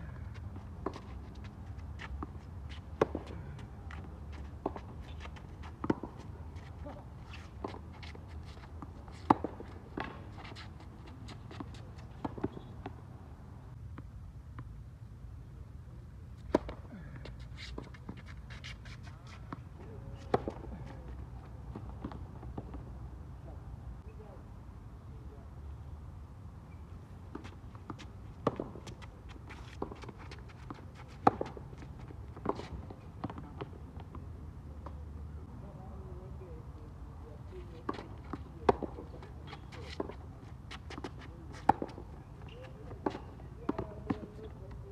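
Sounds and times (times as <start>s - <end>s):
tennis ball bouncing: 0.3s - 3.3s, 3.9s - 6.3s, 8.7s - 10.5s, 27.3s - 34.1s, 39.6s - 44.3s.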